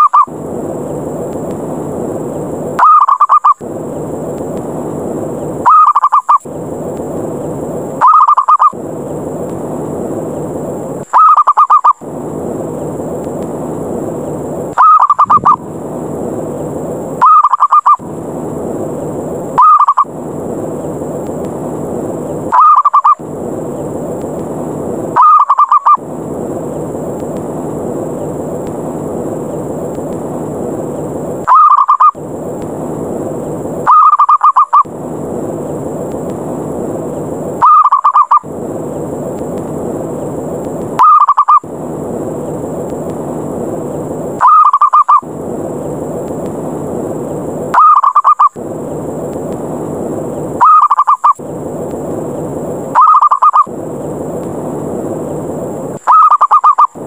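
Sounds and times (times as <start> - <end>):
steady hiss: 0.0 - 57.0
dove cooing: 53.0 - 53.7, 56.1 - 56.9.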